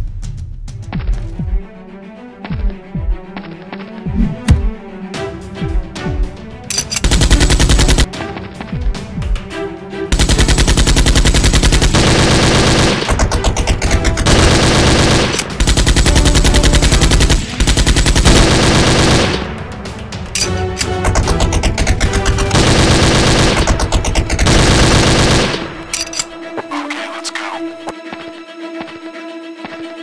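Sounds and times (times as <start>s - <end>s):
background music: 0.0s - 30.0s
automatic gunfire: 6.7s - 8.1s, 10.2s - 19.5s, 20.9s - 26.2s.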